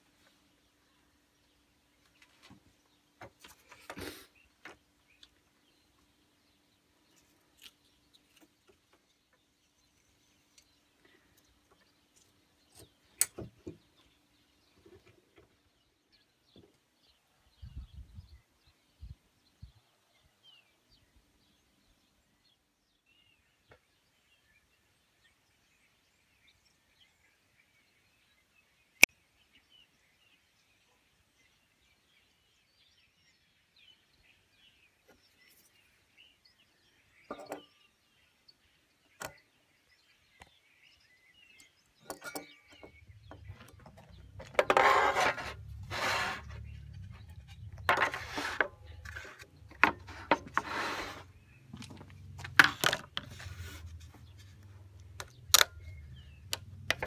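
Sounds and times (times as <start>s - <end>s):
faint birdsong: 0.0s - 57.0s
scraping and knocking of board: 42.2s - 54.6s.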